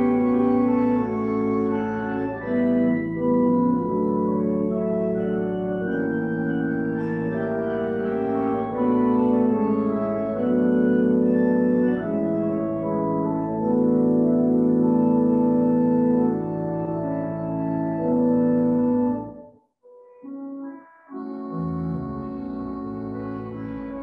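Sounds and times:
pipe organ chords: 0:00.0 - 0:19.5, 0:20.2 - 0:24.0.

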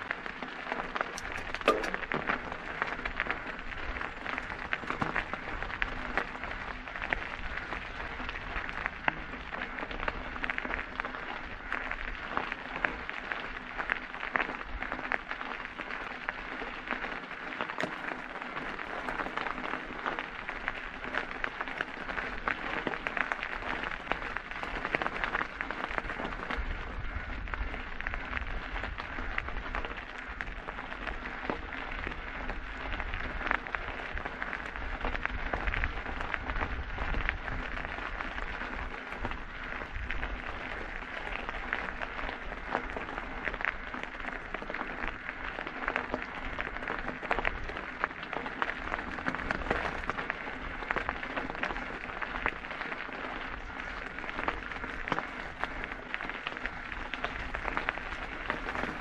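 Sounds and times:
bike tyres crunching on gravel: 0:00.0 - 0:59.0.

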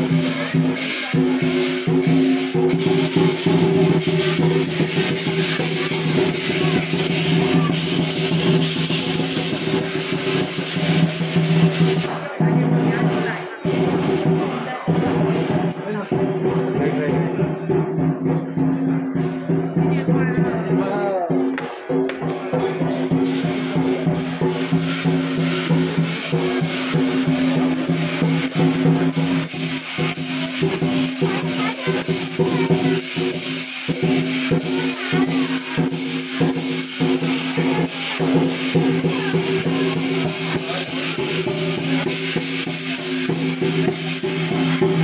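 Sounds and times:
cymbals clashing: 0:00.0 - 0:45.0
large drum beating: 0:00.0 - 0:45.0.

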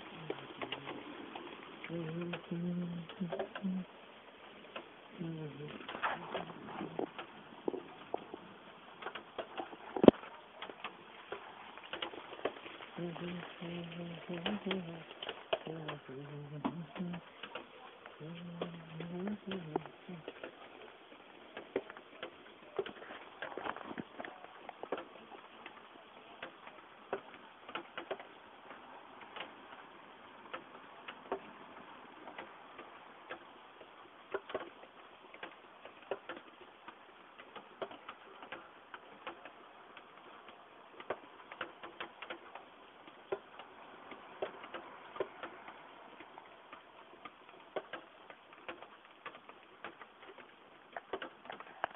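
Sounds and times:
heavy rain hissing: 0:00.0 - 0:29.0
raindrops ticking on hard surfaces: 0:00.0 - 0:51.9.

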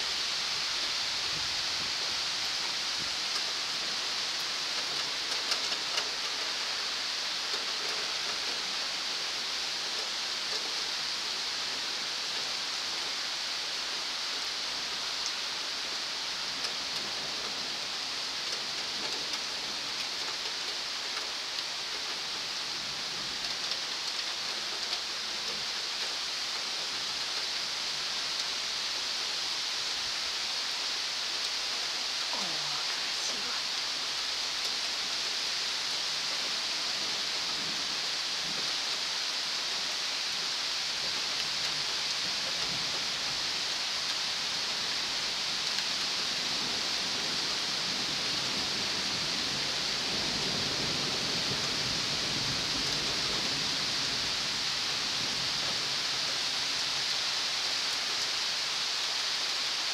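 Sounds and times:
heavy rain hissing: 0:00.0 - 0:59.9
raindrops ticking: 0:02.6 - 0:08.8.

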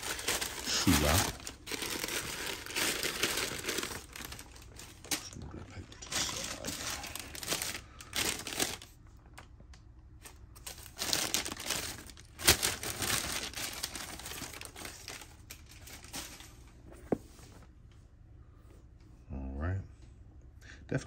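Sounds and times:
tissue paper crinkling: 0:00.0 - 0:05.4, 0:06.0 - 0:09.0, 0:10.2 - 0:16.8.

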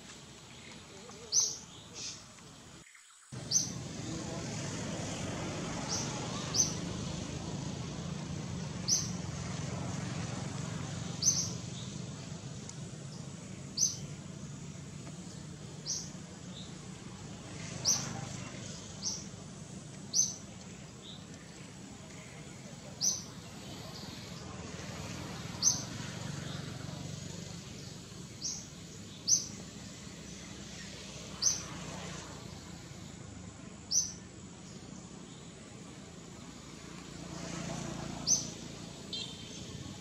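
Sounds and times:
bird chirping: 0:00.4 - 0:04.2, 0:05.8 - 0:06.9, 0:08.8 - 0:09.2, 0:11.0 - 0:12.3, 0:13.1 - 0:14.2, 0:15.2 - 0:16.8, 0:17.6 - 0:19.4, 0:20.1 - 0:24.5, 0:25.5 - 0:26.6, 0:27.7 - 0:30.4, 0:31.3 - 0:31.8, 0:38.2 - 0:39.7.

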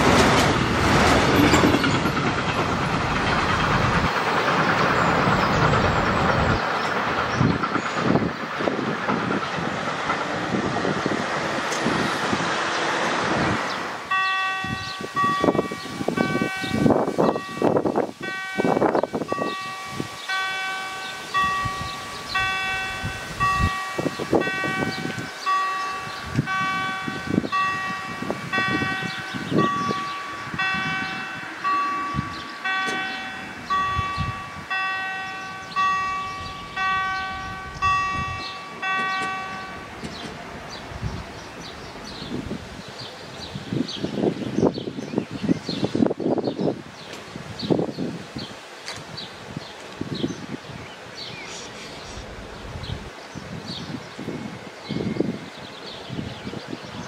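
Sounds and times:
freight train rumble: 0:00.0 - 0:57.0
level crossing warning bell: 0:14.0 - 0:40.8.

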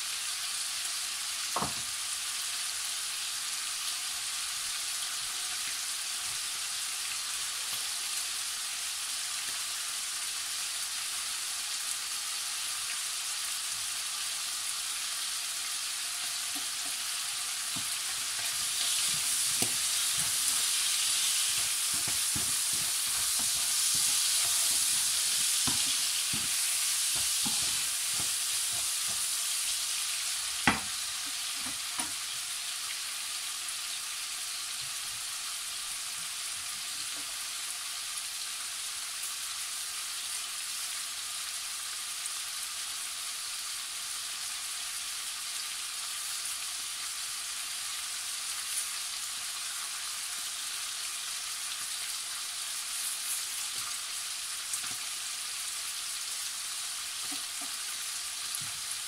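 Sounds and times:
meat sizzling in frying pan: 0:00.0 - 0:59.0
wooden spoon knocking pan: 0:17.7 - 0:29.3, 0:30.6 - 0:31.0.

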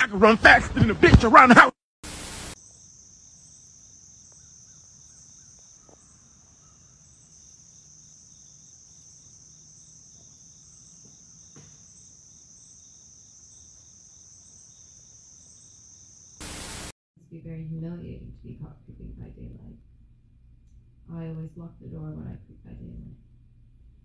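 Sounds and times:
insect high trill: 0:02.0 - 0:16.9
pulsing insect chirp: 0:02.0 - 0:16.9.

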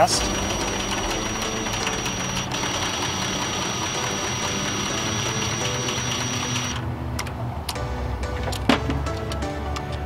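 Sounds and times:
impact driver whining: 0:00.2 - 0:06.8.

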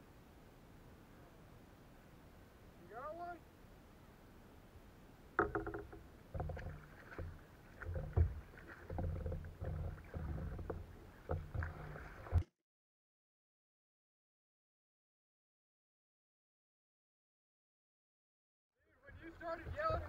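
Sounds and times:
hollow thumps on plastic hull: 0:05.4 - 0:12.5
paddle stroking through water: 0:05.4 - 0:12.5, 0:19.1 - 0:20.0.

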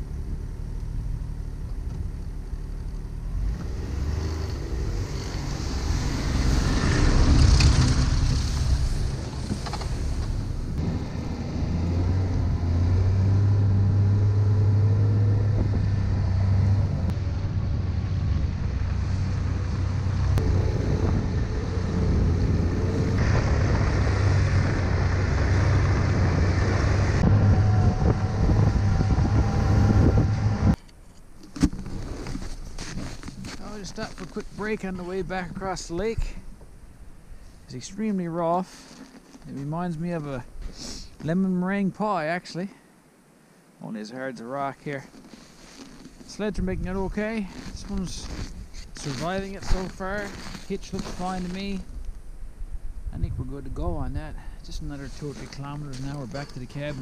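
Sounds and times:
snowmobile engine: 0:00.0 - 0:30.8, 0:47.0 - 0:51.8
wind noise on microphone: 0:15.0 - 0:30.8, 0:46.4 - 0:55.8.

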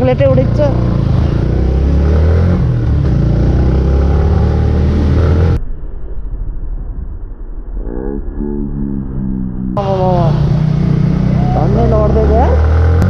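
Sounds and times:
motorcycle engine revving: 0:00.0 - 0:05.6, 0:08.9 - 0:13.0
wind and road noise: 0:00.0 - 0:07.9, 0:08.8 - 0:13.0.

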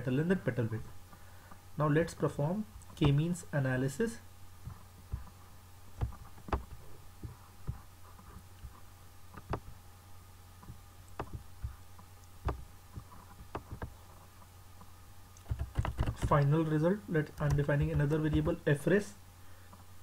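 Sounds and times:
low electrical hum: 0:00.0 - 0:20.0
soft clicks and light thumps: 0:04.6 - 0:05.4, 0:06.0 - 0:09.8, 0:10.6 - 0:16.5.

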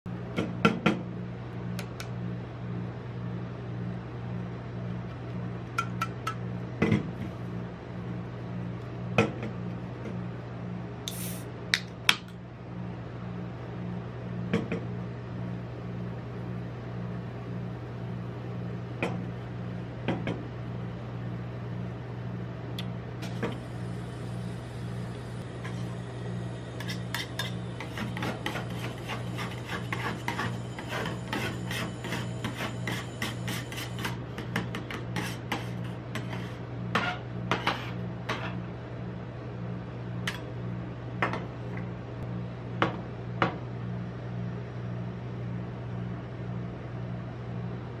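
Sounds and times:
refrigeration unit humming: 0:00.1 - 0:48.0
soda can opening hiss: 0:11.1 - 0:11.5
spatulas scraping steel plate: 0:26.8 - 0:34.2, 0:34.9 - 0:38.6.

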